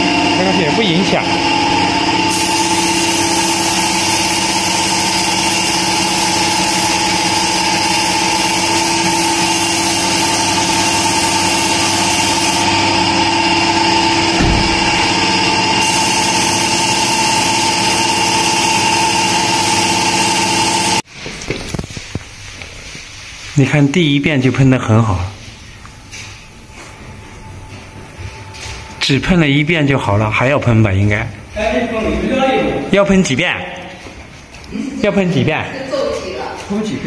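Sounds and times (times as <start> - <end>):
air compressor hum: 0.0 - 23.6
spray gun hissing: 2.3 - 12.8, 14.4 - 21.0
low bump: 14.2 - 15.8.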